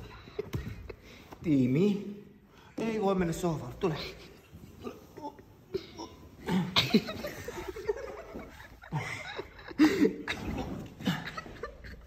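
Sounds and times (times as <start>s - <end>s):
people laughing: 6.4s - 12.0s.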